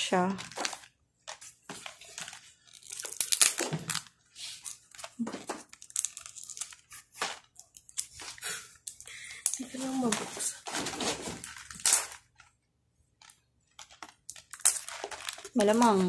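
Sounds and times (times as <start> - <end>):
cardboard packaging tearing and crinkling: 0.4 - 7.5, 9.7 - 12.2, 13.8 - 16.0.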